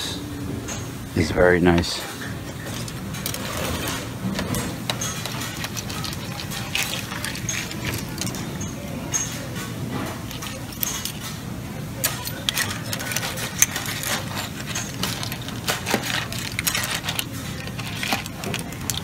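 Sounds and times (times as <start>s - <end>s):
room noise hum: 0.0s - 19.0s
clam shells clinking on metal: 10.2s - 11.3s, 12.0s - 19.0s.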